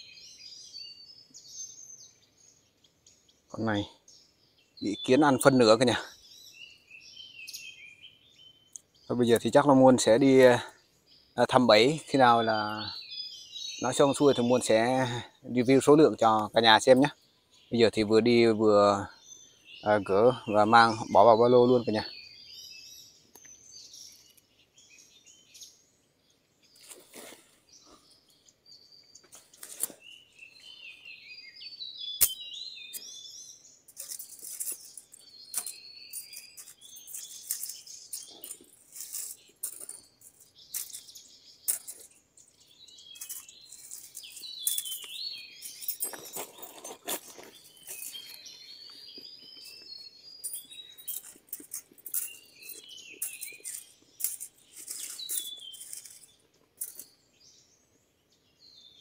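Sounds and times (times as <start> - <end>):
birds chirping and calling: 0.0 - 59.0
leaves and twigs rustling: 26.6 - 28.4, 29.1 - 31.1, 33.9 - 57.4
wire trap clicking: 32.2 - 32.4.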